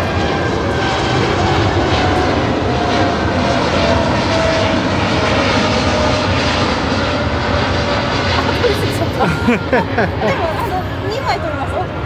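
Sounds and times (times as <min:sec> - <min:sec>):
airliner jet engines: 0:00.0 - 0:12.0.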